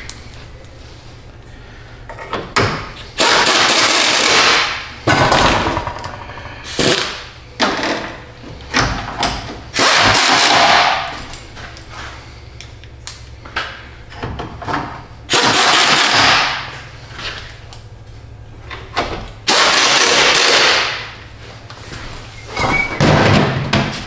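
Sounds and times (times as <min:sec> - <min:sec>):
pneumatic impact gun bursts: 0:03.2 - 0:04.8, 0:09.7 - 0:11.1, 0:15.3 - 0:16.7, 0:19.5 - 0:21.0.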